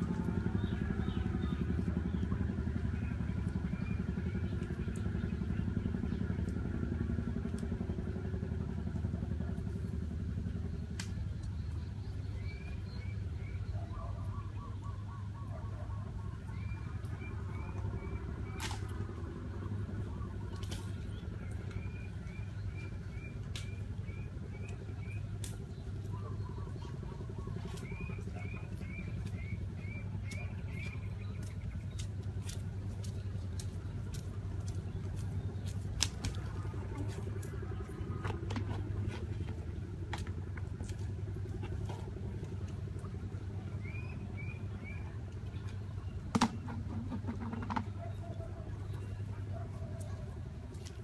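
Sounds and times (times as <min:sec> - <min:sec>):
low hum: 0:00.0 - 0:51.0
bird chirping: 0:10.8 - 0:18.7, 0:20.0 - 0:39.6, 0:43.6 - 0:50.2
low rumble: 0:16.2 - 0:49.5.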